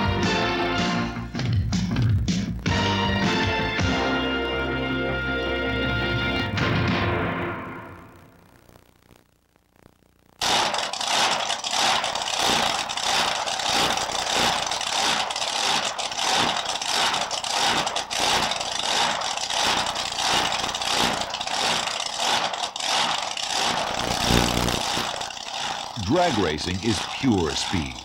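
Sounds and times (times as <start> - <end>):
drag-racing engine idling: 10.4 - 28.0.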